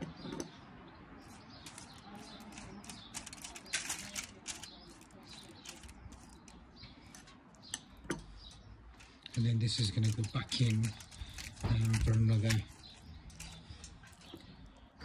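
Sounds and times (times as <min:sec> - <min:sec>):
foil rustling: 0:01.2 - 0:07.4, 0:08.5 - 0:14.8.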